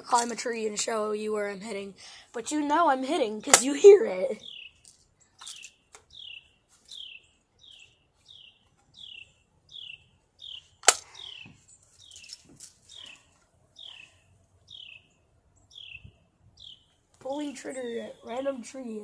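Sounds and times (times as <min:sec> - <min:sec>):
air rifle crack: 0:10.8 - 0:11.4.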